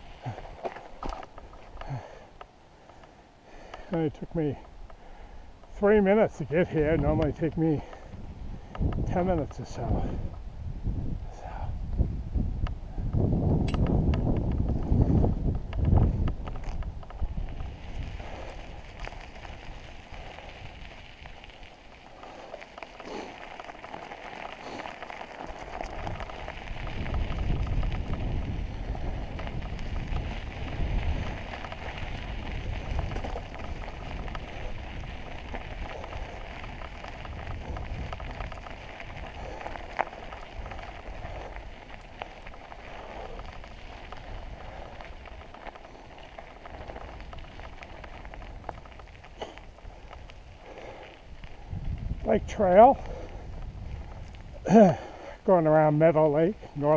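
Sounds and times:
bike tyres crunching on gravel: 0.0s - 56.9s
wind gusts on microphone: 5.4s - 56.9s.

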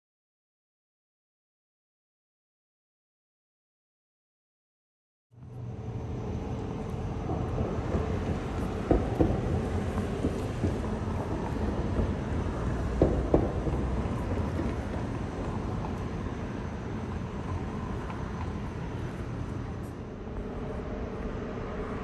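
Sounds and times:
low rumble of street traffic: 5.3s - 22.0s.

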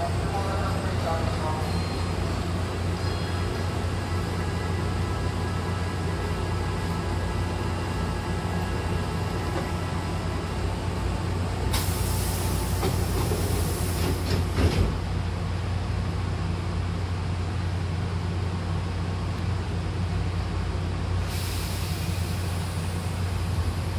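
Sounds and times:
train humming: 0.0s - 23.9s
train door hiss: 11.7s - 15.1s, 21.2s - 23.9s
sliding doors knocking shut: 14.0s - 15.0s.

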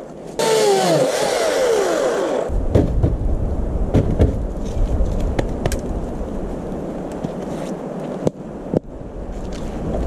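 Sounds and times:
electric chainsaw cutting log: 0.4s - 2.5s
low rumble: 2.5s - 7.0s.

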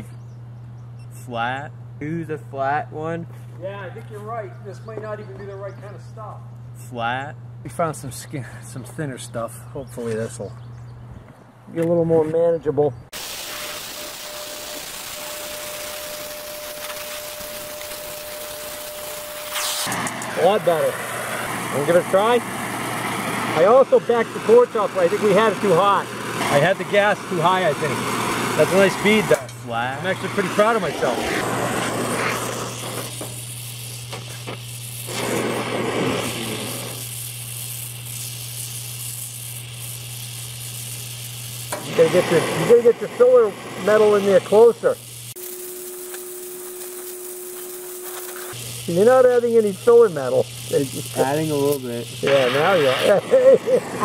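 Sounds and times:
welding torch flame hissing: 13.1s - 54.0s.

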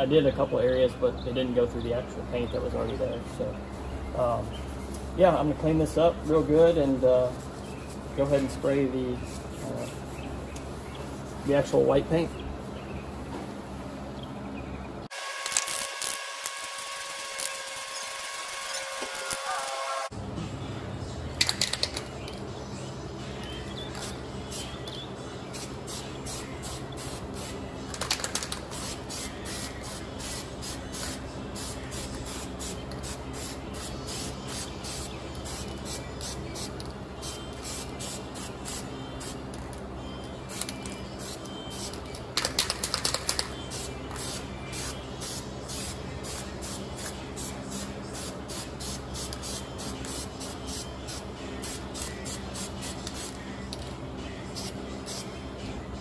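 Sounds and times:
spray paint can hissing: 23.9s - 24.8s, 25.5s - 39.4s, 40.5s - 53.4s, 54.6s - 55.3s.

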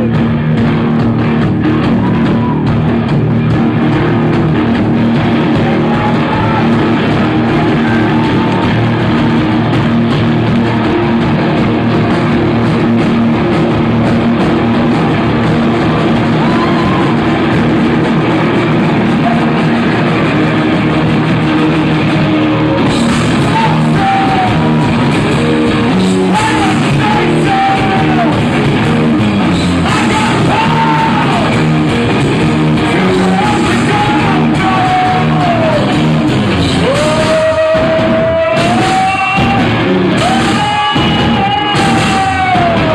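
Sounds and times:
live rock band playing: 0.0s - 42.9s.

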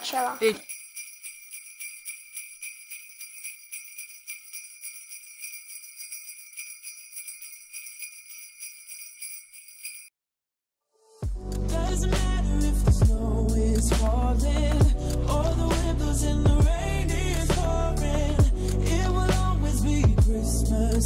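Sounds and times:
sleigh bells jingling: 0.0s - 10.1s
music with strong bass: 11.2s - 21.0s.

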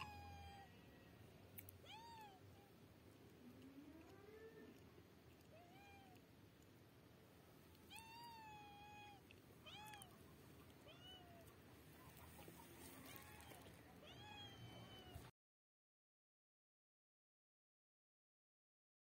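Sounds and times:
cat meowing: 0.0s - 0.8s, 1.8s - 2.8s, 5.5s - 6.2s, 7.9s - 10.2s, 10.8s - 11.5s, 13.0s - 15.3s.

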